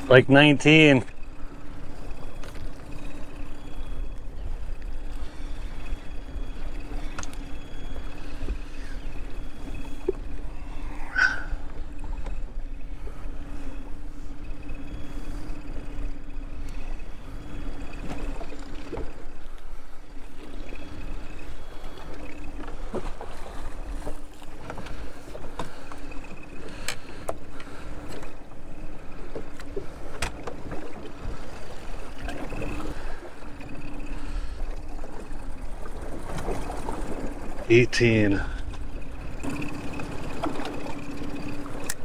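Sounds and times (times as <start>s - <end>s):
faint hum: 0.0s - 42.0s
water lapping against hull: 0.0s - 42.0s
knocks and clicks of gear: 7.0s - 7.6s, 22.0s - 28.4s, 29.2s - 31.3s, 38.6s - 42.0s.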